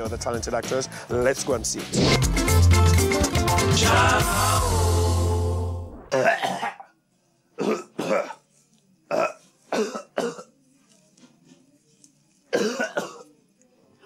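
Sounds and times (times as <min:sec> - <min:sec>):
man retching: 0:06.0 - 0:06.9.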